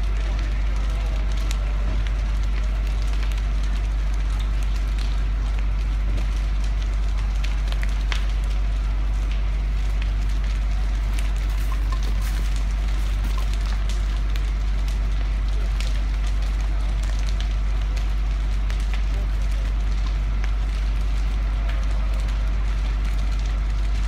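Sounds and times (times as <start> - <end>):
fire crackling and popping: 0.0 - 24.0
fire rumbling: 0.0 - 24.0.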